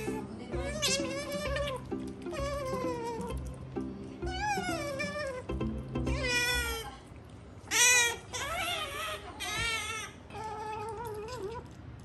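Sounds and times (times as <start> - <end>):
cat meowing: 0.0 - 3.4, 4.2 - 5.5, 6.1 - 6.9.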